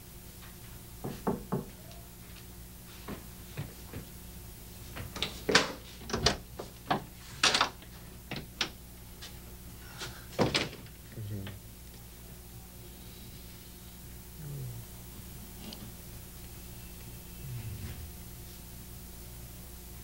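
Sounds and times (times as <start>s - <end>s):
knocking on a door: 1.0s - 1.7s.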